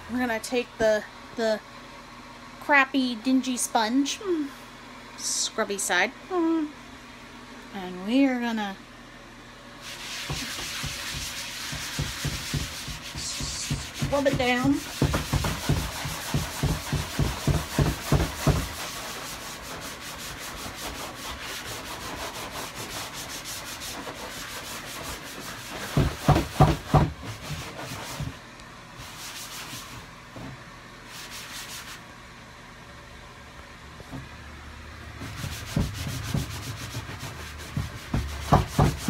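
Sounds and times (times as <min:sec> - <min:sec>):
sponge scrubbing plastic surface: 0:09.8 - 0:28.4, 0:29.0 - 0:32.1, 0:35.2 - 0:39.0.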